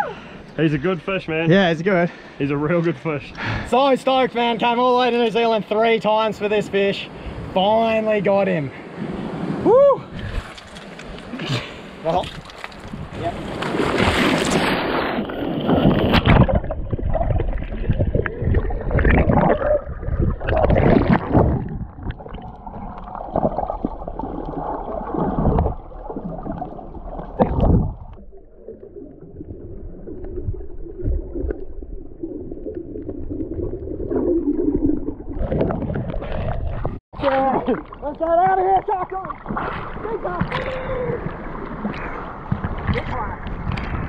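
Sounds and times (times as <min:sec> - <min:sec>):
underwater churning water and bubbles: 0:12.8 - 0:44.0.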